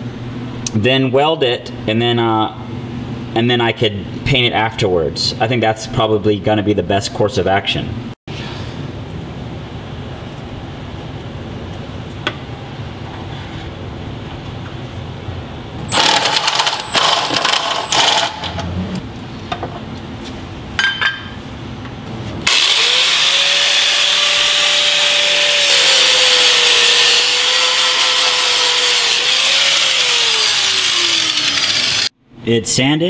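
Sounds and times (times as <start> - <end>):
tools clattering: 20.8 - 21.4
power sander sanding metal: 22.5 - 32.1.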